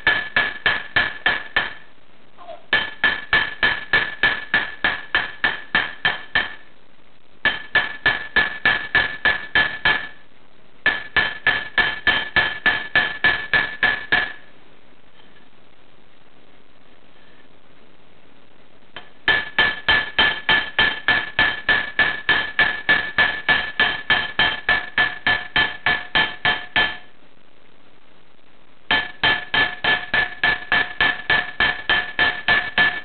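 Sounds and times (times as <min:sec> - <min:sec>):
hammer striking metal: 0:00.0 - 0:01.9, 0:02.7 - 0:06.7, 0:07.4 - 0:10.2, 0:10.8 - 0:14.4, 0:19.0 - 0:27.1, 0:28.9 - 0:33.0.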